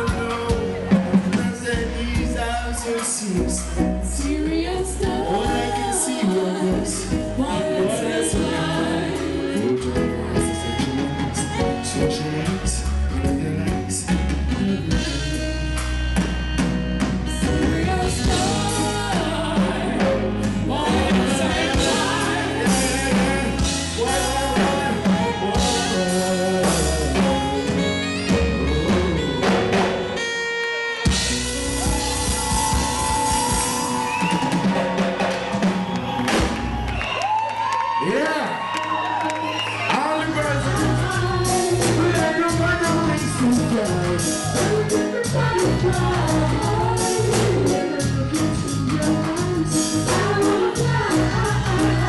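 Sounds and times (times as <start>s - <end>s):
voices singing: 0.0s - 13.9s, 17.5s - 29.8s, 39.9s - 52.0s
live reggae band: 0.0s - 52.0s.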